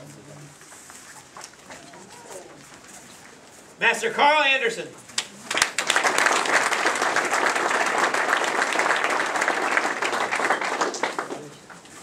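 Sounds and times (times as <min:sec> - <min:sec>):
crowd applauding: 0:05.2 - 0:11.7.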